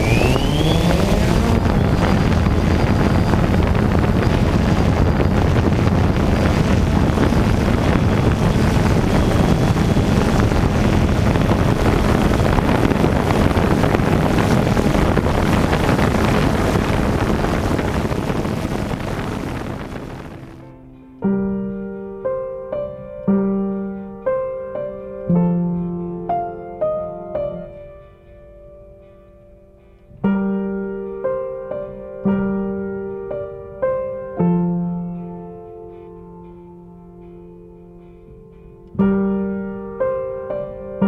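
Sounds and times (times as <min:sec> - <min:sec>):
drone motors and propellers: 0:00.0 - 0:20.6
wind on microphone: 0:00.0 - 0:20.7.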